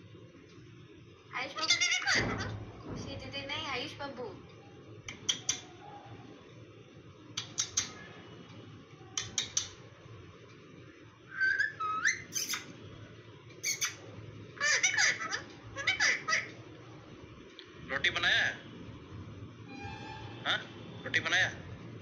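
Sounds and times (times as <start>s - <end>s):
parrot squawking: 1.5s - 2.6s, 11.4s - 12.7s, 13.6s - 14.0s, 14.6s - 16.6s, 20.1s - 21.6s
parrot whistled call: 11.3s - 12.7s.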